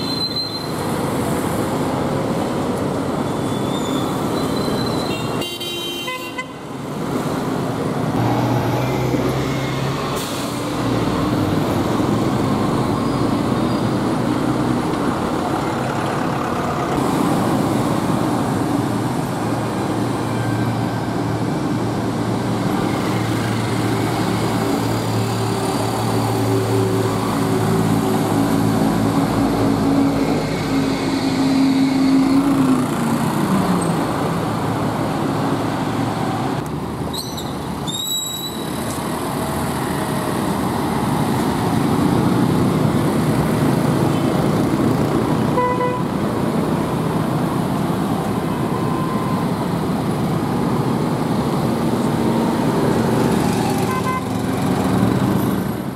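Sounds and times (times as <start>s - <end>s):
motorcycles and buses passing: 6.7s - 55.9s
vehicle horn toots: 45.6s - 46.1s.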